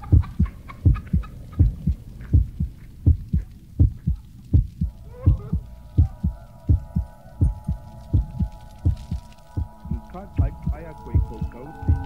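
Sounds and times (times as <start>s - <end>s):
heartbeat: 0.0s - 12.0s
held chord of steady tones: 4.8s - 12.0s.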